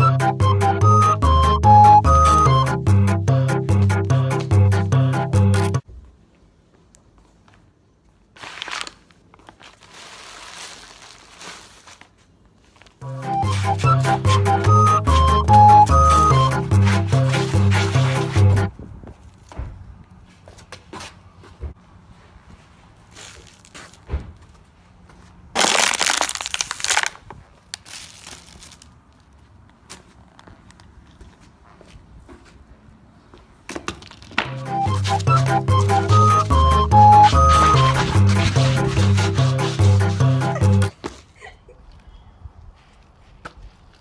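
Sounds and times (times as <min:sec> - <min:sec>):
music: 0:00.0 - 0:05.8, 0:13.0 - 0:18.7, 0:34.5 - 0:40.9
plastic wrapping crinkling underfoot: 0:08.2 - 0:13.1, 0:23.0 - 0:24.1, 0:25.6 - 0:30.9
footstep on crumpled paper: 0:08.4 - 0:13.7, 0:22.5 - 0:32.6
sharp crunch underfoot: 0:23.0 - 0:32.0.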